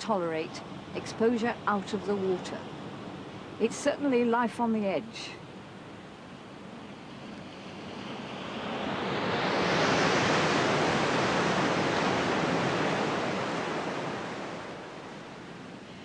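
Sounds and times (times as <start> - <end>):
sea surf on rocky shore: 5.5 - 16.0.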